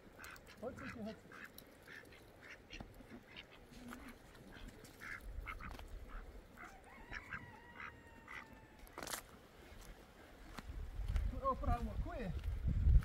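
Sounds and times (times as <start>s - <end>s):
faint fowl calls: 0.0s - 9.3s.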